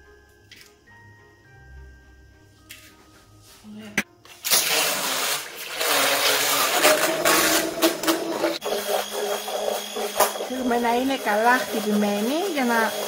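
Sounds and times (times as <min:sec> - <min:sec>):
hand blender motor hum: 0:04.4 - 0:13.0
egg whites churning and splashing: 0:04.5 - 0:13.0.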